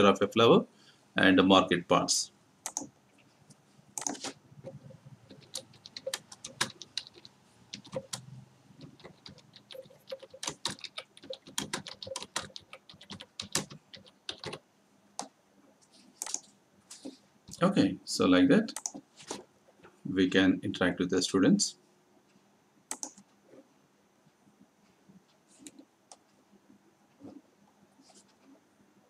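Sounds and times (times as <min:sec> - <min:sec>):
computer keyboard typing: 0:02.6 - 0:02.9, 0:04.0 - 0:04.4, 0:05.2 - 0:14.6, 0:16.2 - 0:16.5, 0:18.7 - 0:19.0, 0:22.9 - 0:23.2.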